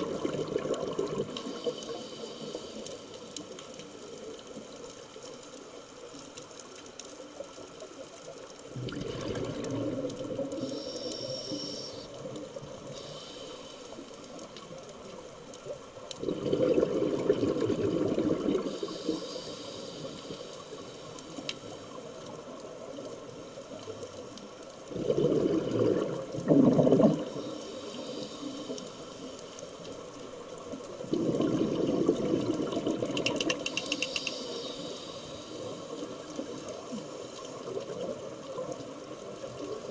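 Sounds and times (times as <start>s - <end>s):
exhaled bubbles underwater: 0.0s - 2.1s, 8.7s - 12.9s, 15.7s - 19.2s, 24.8s - 27.8s, 30.7s - 34.0s
steady water hiss: 0.0s - 39.9s.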